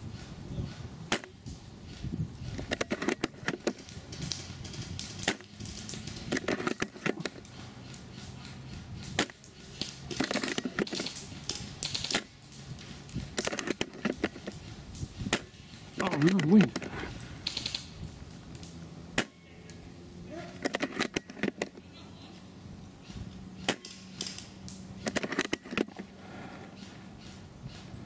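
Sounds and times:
airsoft guns firing rapid clicks: 0:00.2 - 0:19.3, 0:23.6 - 0:26.0.

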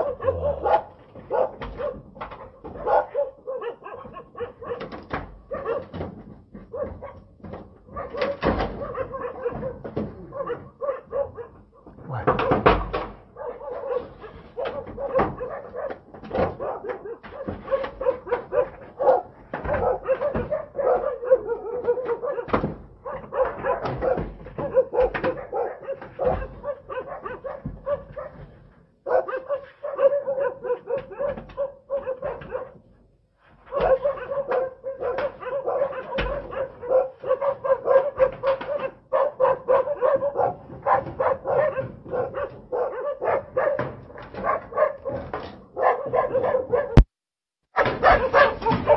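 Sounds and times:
dogs barking rapidly: 0:00.0 - 0:47.1, 0:47.8 - 0:48.9.

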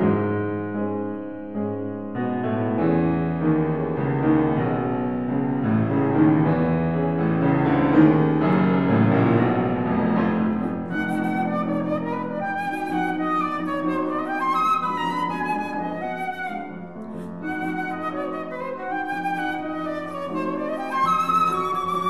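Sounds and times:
grand piano playing: 0:00.0 - 0:22.0
flute melody: 0:07.6 - 0:22.0.

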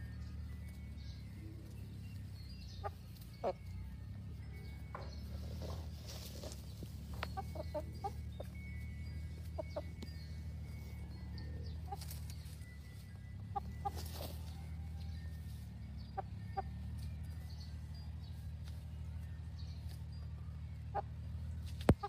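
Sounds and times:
steady low hum: 0:00.0 - 0:22.0
hens clucking softly: 0:01.5 - 0:03.8, 0:05.0 - 0:08.6, 0:09.4 - 0:12.6, 0:13.4 - 0:17.4.

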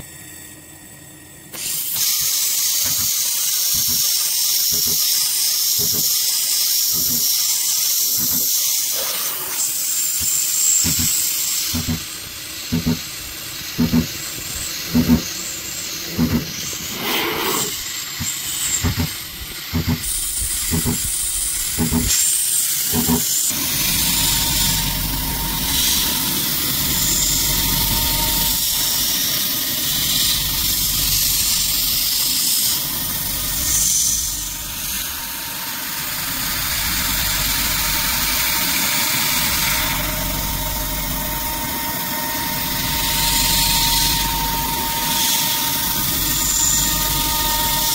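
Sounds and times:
coolant nozzle hiss: 0:01.6 - 0:24.0
cnc spindle milling metal: 0:02.8 - 0:17.0, 0:17.6 - 0:47.9.

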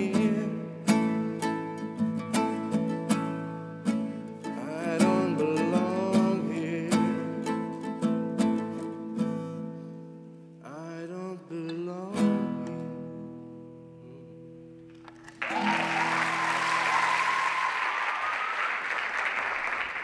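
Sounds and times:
audience applause: 0:15.0 - 0:20.0
long whistle: 0:15.4 - 0:19.1.

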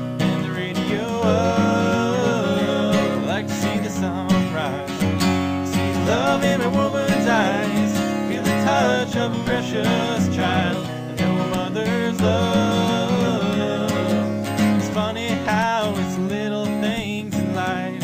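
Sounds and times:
acoustic guitar: 0:00.0 - 0:18.0
person singing: 0:00.2 - 0:18.0.

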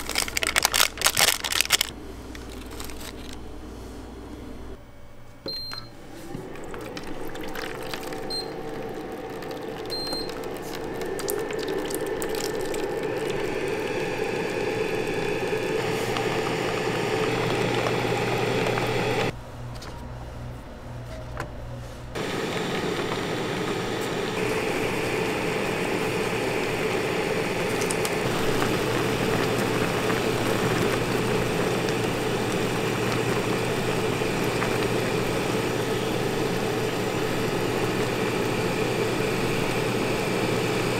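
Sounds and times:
cooker humming: 0:00.0 - 0:19.4, 0:22.2 - 0:40.9
water pouring and bubbling: 0:06.4 - 0:19.3, 0:23.7 - 0:40.8.

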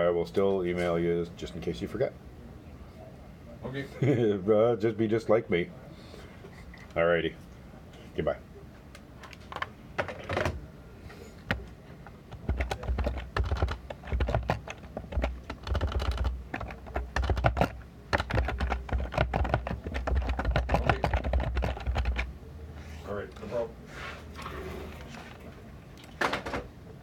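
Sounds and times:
fingers typing on a phone: 0:12.3 - 0:22.3.

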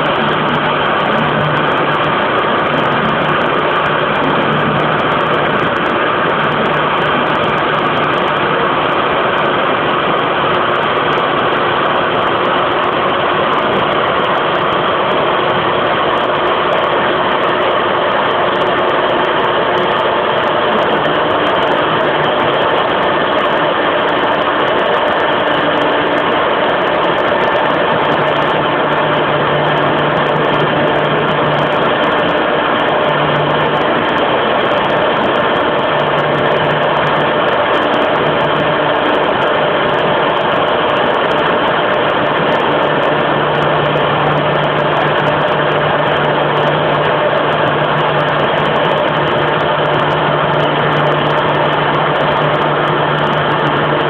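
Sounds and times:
cnc router cutting plywood: 0:00.0 - 0:54.0
low hum: 0:00.0 - 0:54.0.

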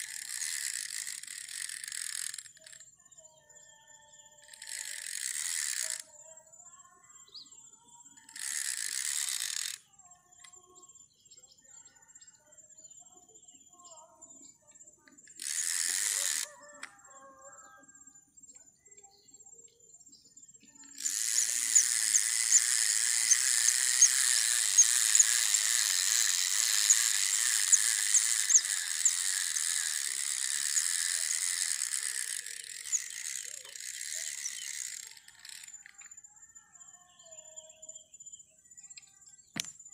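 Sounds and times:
fishing reel whirring and clicking: 0:00.0 - 0:03.0, 0:04.4 - 0:06.2, 0:08.1 - 0:10.6, 0:15.1 - 0:17.0, 0:20.8 - 0:36.2.

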